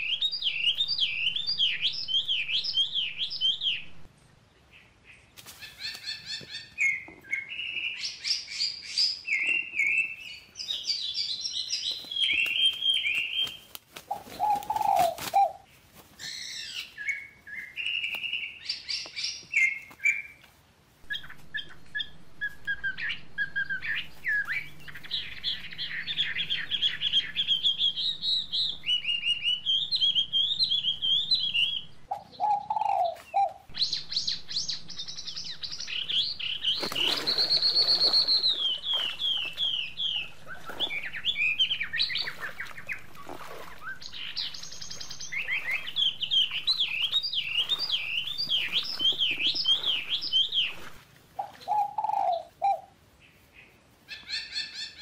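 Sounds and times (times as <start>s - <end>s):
small birds chirping: 0.0s - 55.0s
faint low hum: 21.0s - 32.6s, 33.7s - 51.0s.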